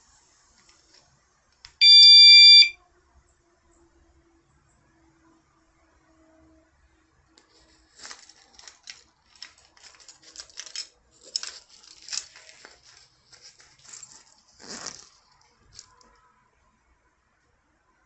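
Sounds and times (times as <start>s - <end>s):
hand rustling nylon bag: 7.5s - 16.0s.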